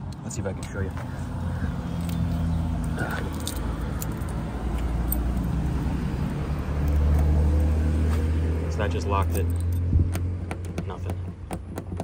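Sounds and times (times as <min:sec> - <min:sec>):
vehicle engine humming: 0:00.0 - 0:12.0.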